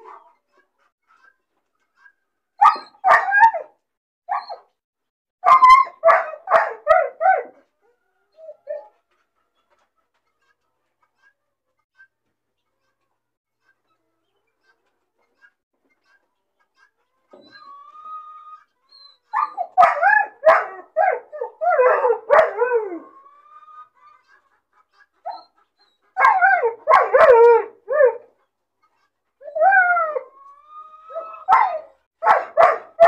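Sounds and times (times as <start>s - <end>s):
puppy yelping and crying: 2.6s - 3.7s, 4.3s - 4.6s, 5.4s - 7.6s, 17.3s - 24.1s, 25.2s - 28.3s, 29.4s - 33.0s
puppy whining: 17.3s - 18.0s, 18.9s - 23.3s, 29.4s - 32.0s.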